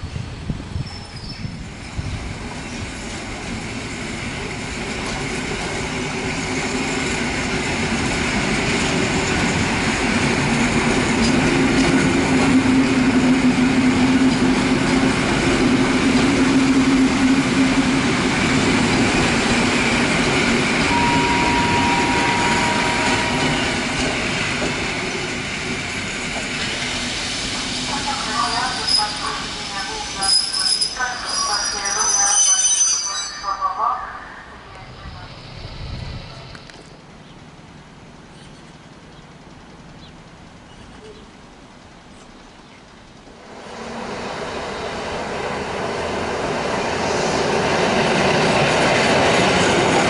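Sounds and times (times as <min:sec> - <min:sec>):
train wheels rumbling: 0:00.2 - 0:32.2, 0:42.9 - 0:50.0
brief squeal: 0:30.2 - 0:33.5.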